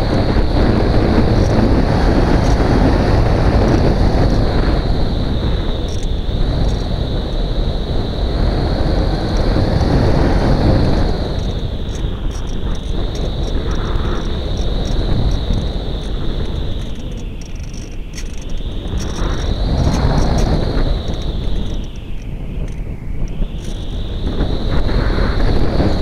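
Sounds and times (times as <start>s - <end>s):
high-pitched whine: 0.0s - 26.0s
wind rushing over camera: 0.0s - 26.0s.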